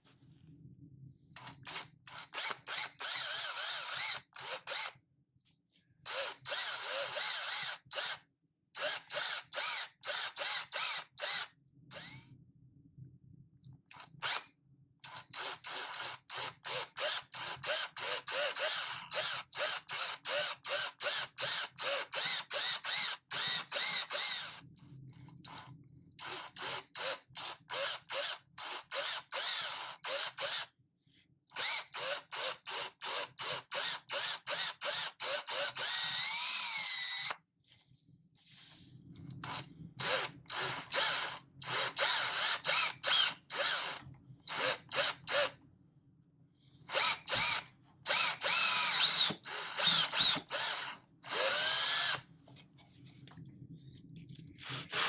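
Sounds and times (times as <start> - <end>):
power drill drilling into wood: 1.6 - 5.0, 6.1 - 8.2, 8.8 - 12.2, 14.2 - 14.4, 15.1 - 24.6, 26.2 - 30.7, 31.6 - 37.4, 39.4 - 45.5, 46.9 - 52.3, 54.6 - 55.0.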